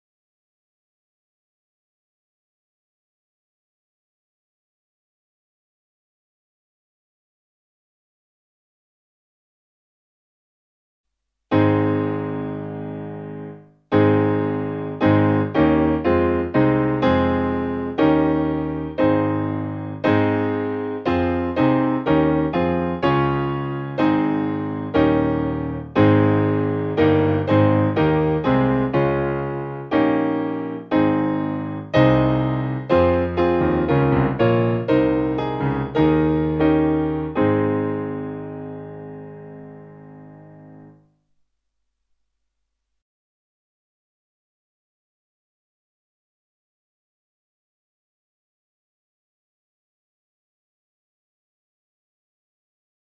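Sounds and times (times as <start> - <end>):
solo piano music: 11.5 - 41.6.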